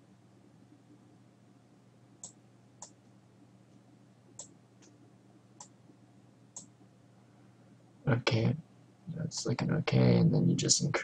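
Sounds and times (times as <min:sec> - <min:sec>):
faint low hum: 0:00.0 - 0:11.0
computer mouse buttons clicking: 0:02.2 - 0:03.0, 0:04.4 - 0:05.0.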